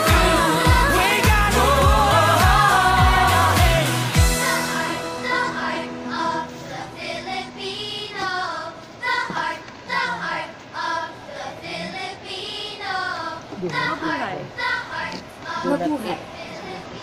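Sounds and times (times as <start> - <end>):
person singing: 0.0 - 6.9
music: 0.0 - 9.5.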